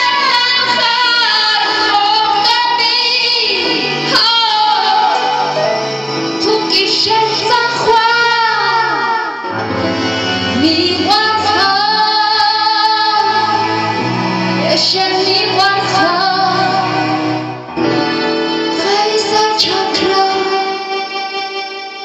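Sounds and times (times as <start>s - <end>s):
sustained accompaniment chords: 8.3s - 22.0s.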